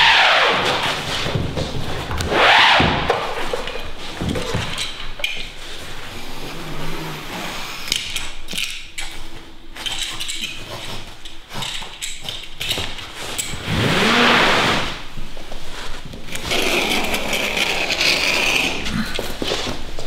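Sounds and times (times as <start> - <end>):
scuffs on floor: 0.1 - 4.9, 14.2 - 16.5, 18.8 - 20.0
underlay rustling and crackling: 8.2 - 20.0.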